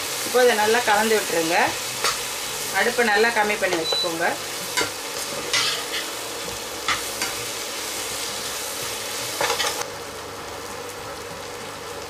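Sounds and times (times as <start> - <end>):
aubergine sizzling in oil: 0.0 - 12.0
metal spoon scraping a pan: 4.7 - 6.1.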